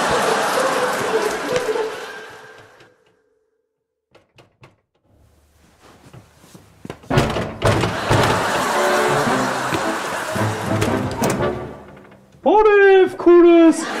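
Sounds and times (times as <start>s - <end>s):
knocks on a door: 7.1s - 8.4s.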